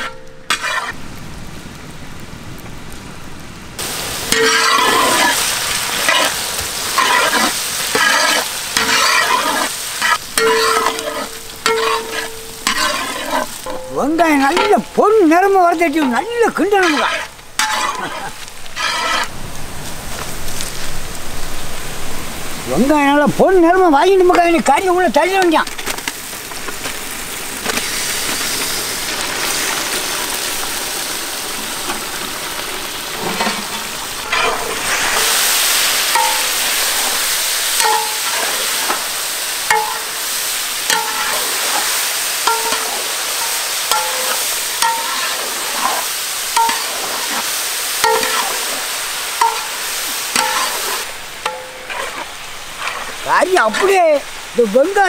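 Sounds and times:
metal ladle scraping pot: 0.0s - 1.0s, 4.3s - 15.0s, 16.0s - 19.3s, 33.1s - 35.4s, 49.4s - 54.0s
meat sizzling in oil: 3.8s - 22.2s, 22.9s - 55.0s.

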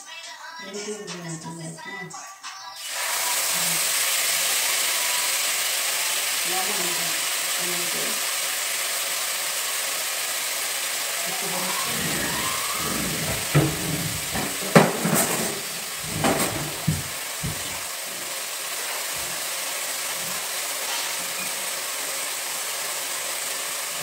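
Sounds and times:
food sizzling in a pot: 2.7s - 24.0s.

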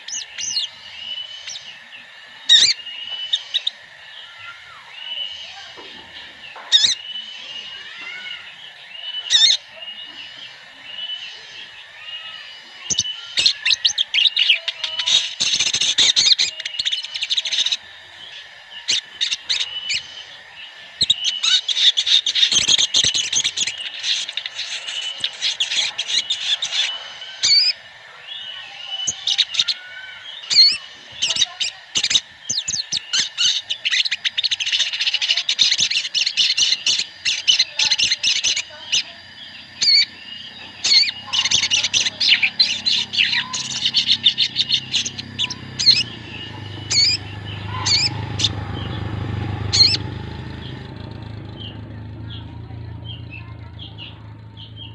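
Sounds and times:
birds twittering and chirping: 0.0s - 54.9s
low rumble: 39.2s - 54.9s.

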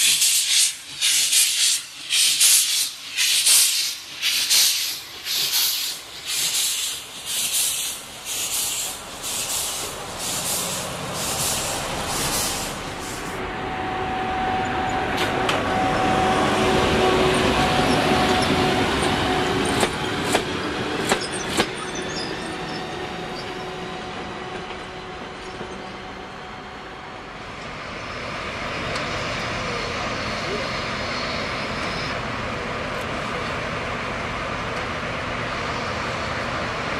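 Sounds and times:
steam locomotive exhaust beats: 0.0s - 21.9s
train rumble with faint whine: 0.0s - 36.9s.

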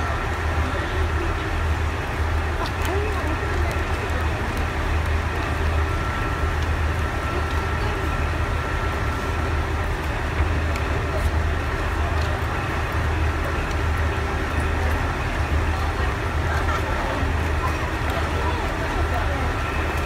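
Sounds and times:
diesel railcar engine idling: 0.0s - 20.0s.

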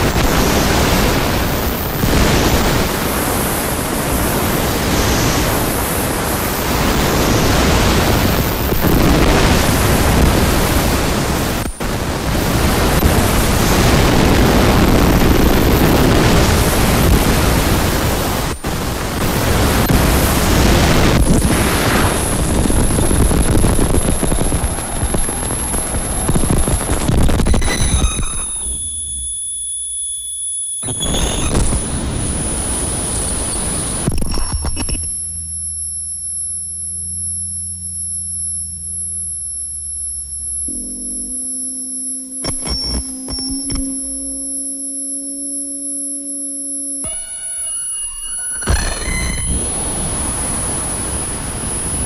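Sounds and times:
distorted noise music: 0.0s - 52.0s
high steady whistle: 27.3s - 52.0s.

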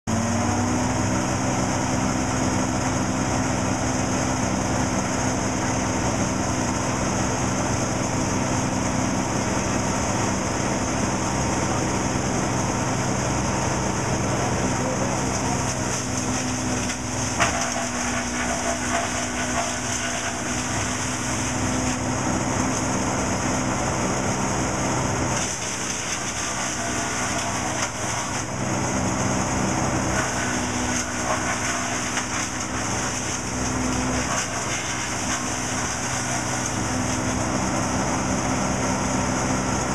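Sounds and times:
diesel engine running: 0.1s - 39.9s
branches being chipped: 15.3s - 22.9s.

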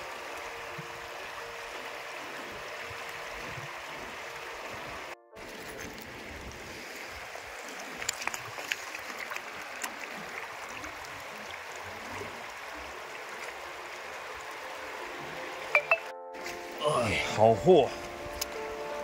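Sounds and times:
river water flowing over rocks: 0.0s - 19.0s
sharp stony clicks: 7.9s - 10.1s.

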